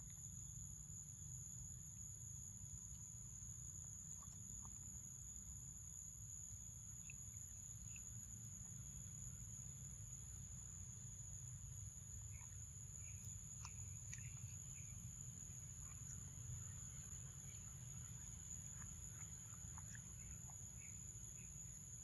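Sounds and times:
small clicks and chirps: 12.3 - 16.2, 17.4 - 21.7.

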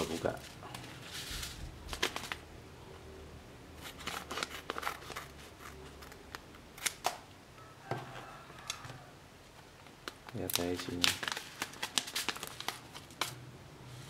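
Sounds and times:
packet crinkling: 0.0 - 2.4, 9.8 - 13.4.

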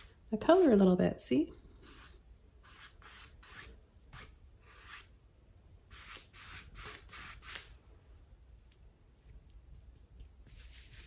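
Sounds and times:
paintbrush swishing on canvas: 9.1 - 11.0.

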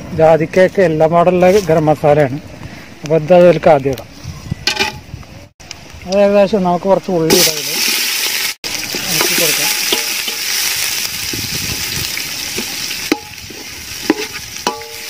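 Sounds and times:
onions sizzling in a pot: 7.2 - 15.0
metal spoon scraping a pot: 13.1 - 15.0.

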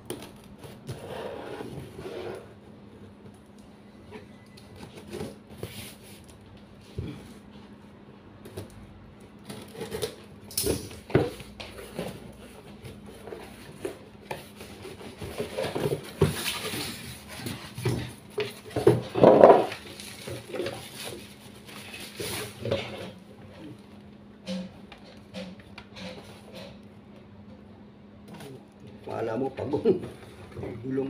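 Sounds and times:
paper and plastic rustling: 9.4 - 23.8.

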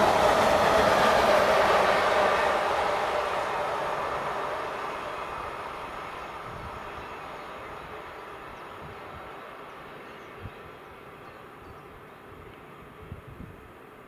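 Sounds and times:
train rumbling: 0.0 - 10.4.

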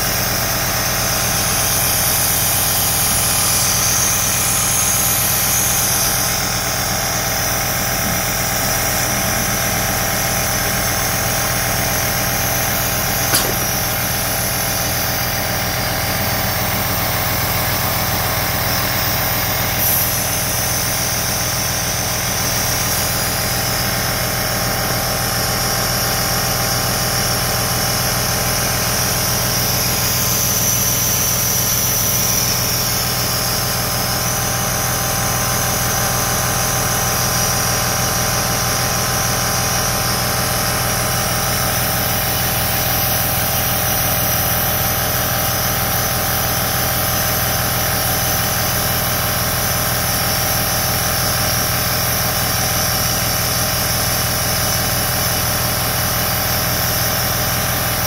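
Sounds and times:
nebulizer motor hum: 0.0 - 23.0.

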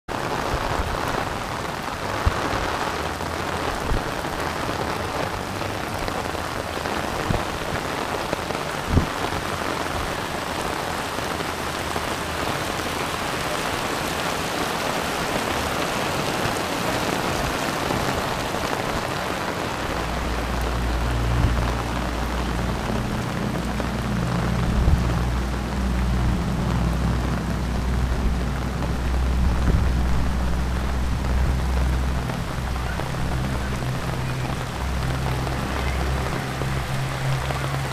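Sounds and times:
heavy rain falling: 0.0 - 37.9
strong low rumble: 19.8 - 37.9.

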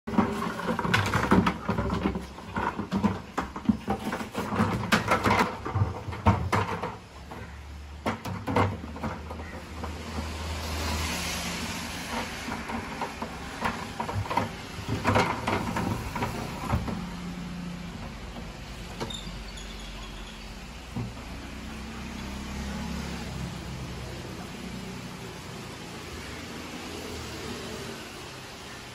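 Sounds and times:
plastic bucket clattering on tiles: 0.1 - 19.2.

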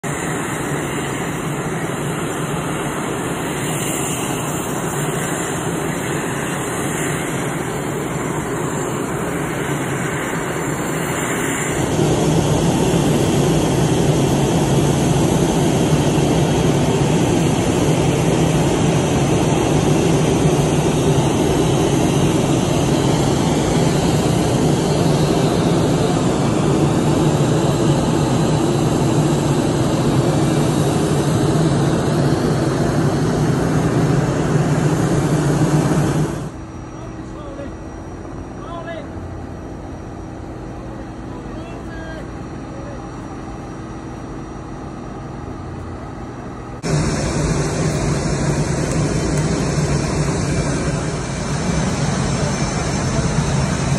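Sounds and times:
aircraft engine hum: 0.0 - 53.9.

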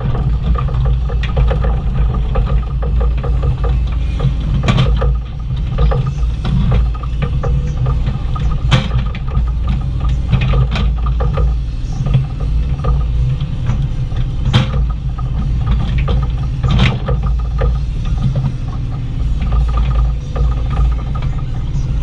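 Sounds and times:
bucket clanks and knocks: 0.0 - 21.4
excavator engine and hydraulics: 0.0 - 22.0.

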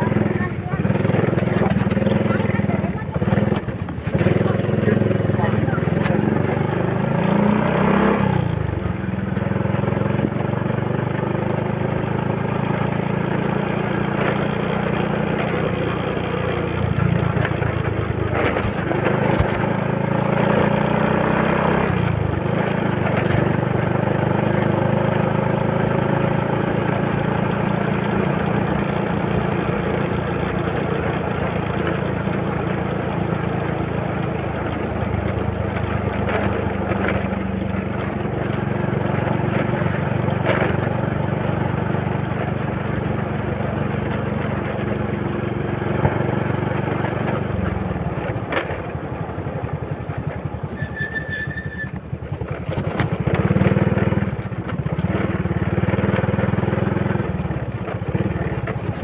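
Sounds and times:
motorcycle engine running: 0.0 - 59.0
wind and road noise: 0.0 - 59.0.

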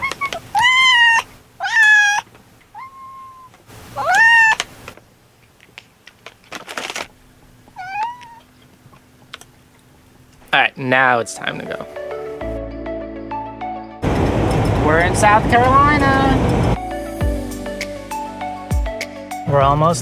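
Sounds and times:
cats meowing: 0.0 - 4.7, 7.7 - 8.7.

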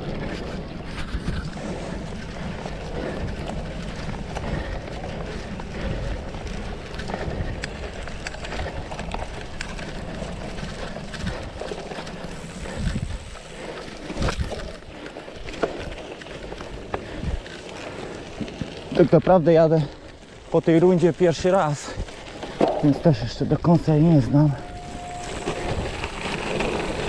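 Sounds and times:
wind on microphone: 0.0 - 14.9, 24.3 - 27.0
bike knocking and rattling: 0.0 - 27.0
bike tyre rumble on grass: 0.0 - 27.0.

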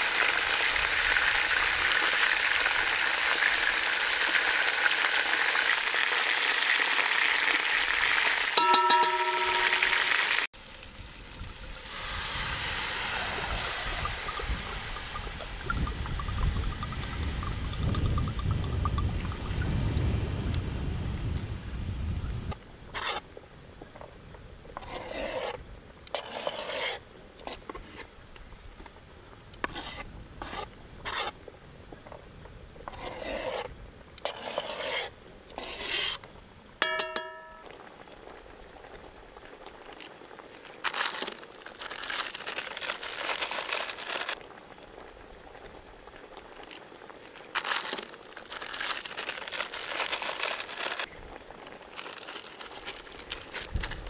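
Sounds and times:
wooden spatula scraping a pot: 8.6 - 10.3, 23.0 - 23.2, 24.8 - 28.1, 29.6 - 31.4, 32.8 - 37.7
brief ringing tone: 8.6 - 10.4, 36.8 - 37.8
rustling: 40.8 - 44.4, 46.5 - 54.0.

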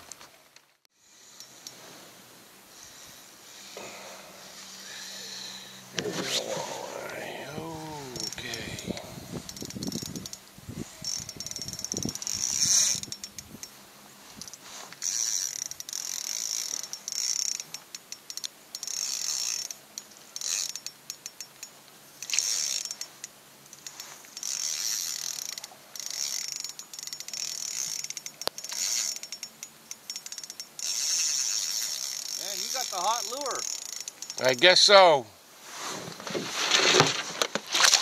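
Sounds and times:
fishing reel ratcheting whir: 1.0 - 1.8, 4.4 - 13.8, 14.4 - 34.5.

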